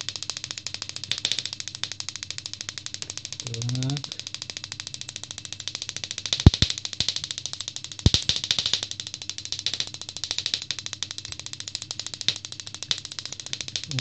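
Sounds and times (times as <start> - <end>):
spark gap snapping: 5.0 - 14.0
sharp electric cracks: 6.4 - 8.8, 9.5 - 14.0.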